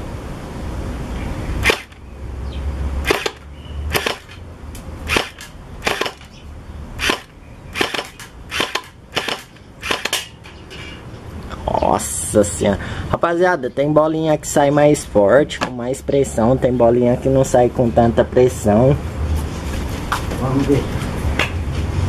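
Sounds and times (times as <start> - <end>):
gel blaster shots: 1.6 - 2.0, 3.0 - 4.3, 5.1 - 6.3, 7.0 - 10.2.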